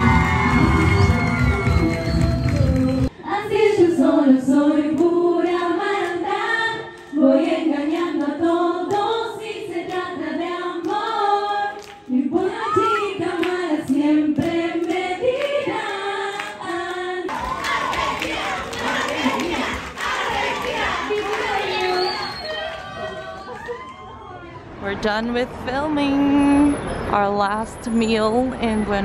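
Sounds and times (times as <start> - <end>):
group singing unaccompanied: 3.2 - 23.3
crowd noise: 17.3 - 27.4.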